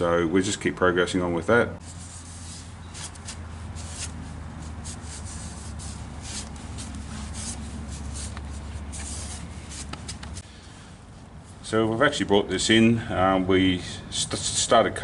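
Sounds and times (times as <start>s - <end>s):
cloth rubbing on metal: 1.8s - 10.4s.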